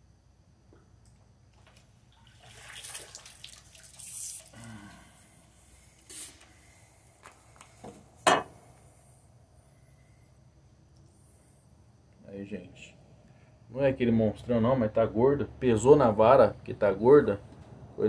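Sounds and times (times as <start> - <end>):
water splashing: 2.1 - 4.6.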